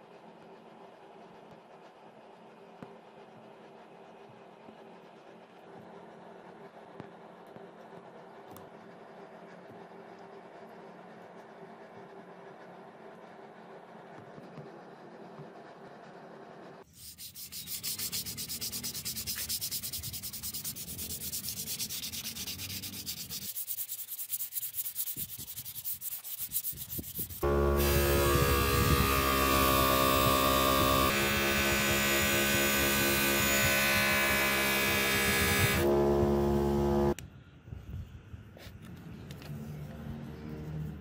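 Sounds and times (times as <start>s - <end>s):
sandpaper scraping steel blade: 16.8s - 36.0s
loud droning with hiss: 27.4s - 37.2s.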